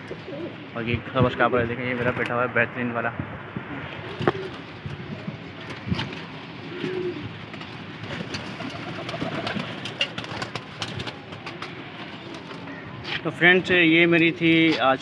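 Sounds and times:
pigeons cooing: 0.0 - 0.6, 3.9 - 11.8.

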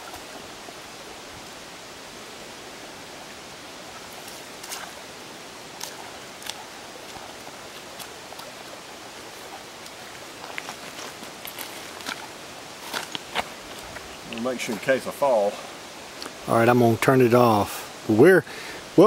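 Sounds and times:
rocky creek running: 0.0 - 19.0
feet wading through water: 3.9 - 14.8.

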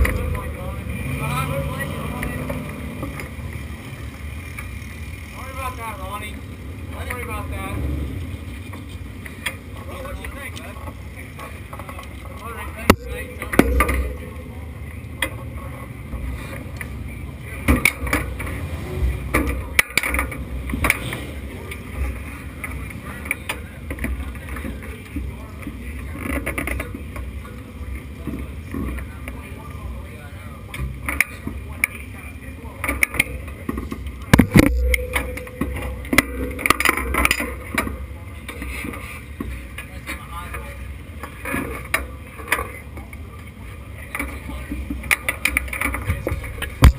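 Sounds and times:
knocks and clicks: 34.3 - 38.0
loud thump: 34.4 - 36.6.

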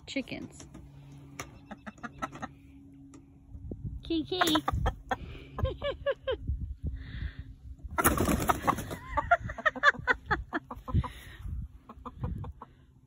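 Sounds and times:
chickens clucking: 1.2 - 2.9, 4.3 - 5.9, 7.9 - 13.0
hens squawking and cackling: 1.3 - 2.8, 8.0 - 12.9.

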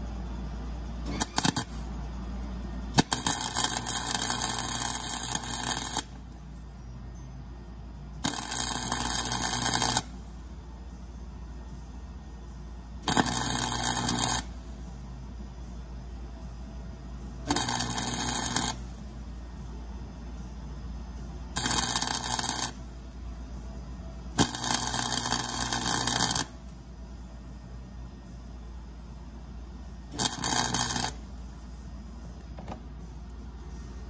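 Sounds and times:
welding arc crackling: 1.1 - 1.9, 2.9 - 6.4, 8.2 - 10.2, 13.0 - 14.6, 17.5 - 19.0, 21.6 - 22.8, 24.4 - 26.7, 30.1 - 31.2.

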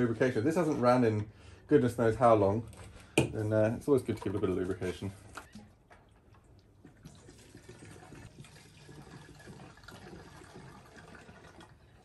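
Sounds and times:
fuel pouring into tank: 6.4 - 12.0.

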